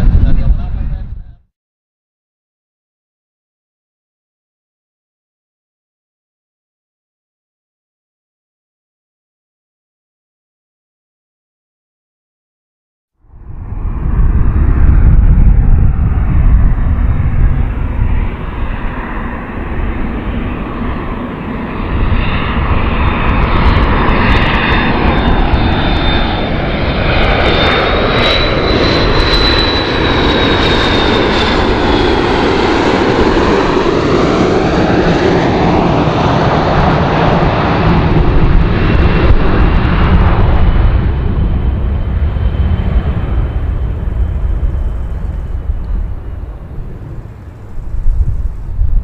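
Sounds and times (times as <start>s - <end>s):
jet airliner roaring: 0.0s - 1.4s, 13.2s - 49.0s
high jet whine: 13.2s - 49.0s.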